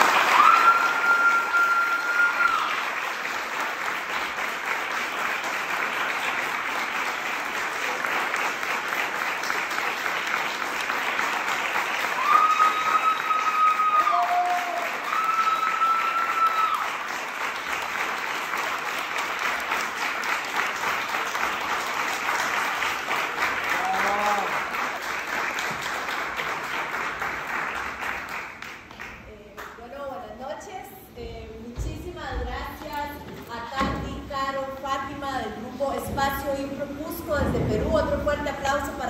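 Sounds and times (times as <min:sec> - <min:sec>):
audience applauding: 0:00.0 - 0:29.3
high held crowd calls: 0:12.1 - 0:17.0.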